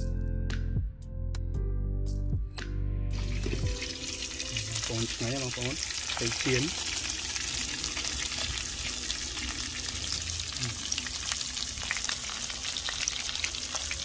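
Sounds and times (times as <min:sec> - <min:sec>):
fish sizzling in hot oil: 0:03.1 - 0:14.0.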